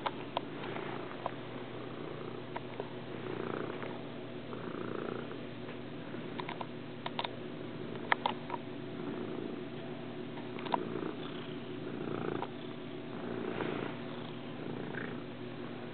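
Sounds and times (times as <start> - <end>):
cat purring: 0.5 - 5.4, 8.9 - 9.7, 10.4 - 15.9
sharp clicks: 6.4 - 7.3.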